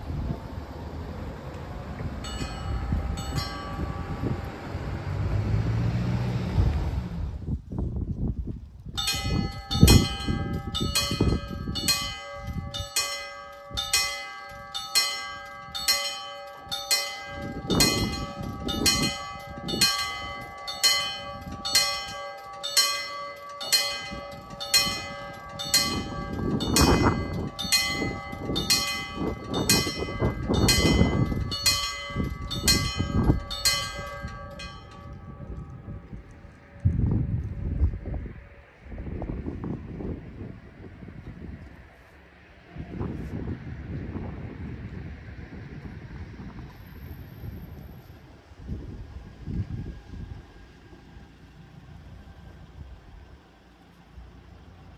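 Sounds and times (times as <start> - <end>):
level crossing warning bell: 2.2 - 5.7, 9.0 - 36.8.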